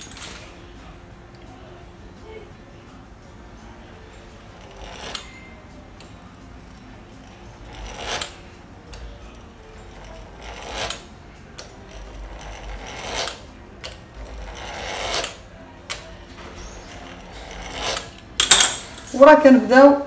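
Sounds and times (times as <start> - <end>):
pastry wheel scraping dough: 4.4 - 5.7, 7.0 - 18.3.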